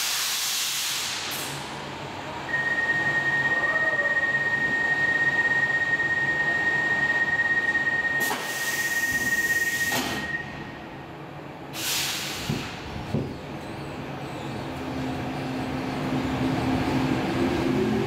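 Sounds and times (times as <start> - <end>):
air hiss: 0.0 - 1.6, 11.8 - 12.8
compressed air bursts: 0.0 - 1.6, 11.8 - 12.8.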